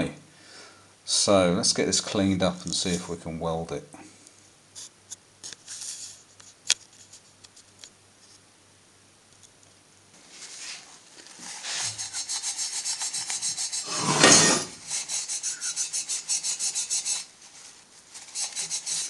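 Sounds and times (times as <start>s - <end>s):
paper rustle: 10.2s - 12.0s
paper towel scrubbing metal: 10.4s - 19.0s.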